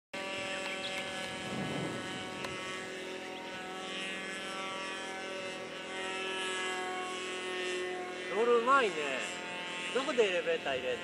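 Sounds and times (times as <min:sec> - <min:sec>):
model airplane motor droning: 0:00.2 - 0:11.0.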